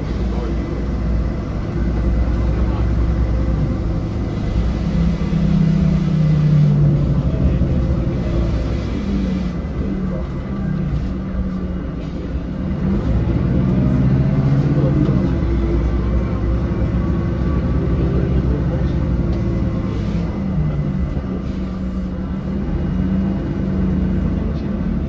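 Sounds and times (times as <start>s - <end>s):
bus engine accelerating: 0.0s - 25.0s
road rumble: 0.0s - 25.0s.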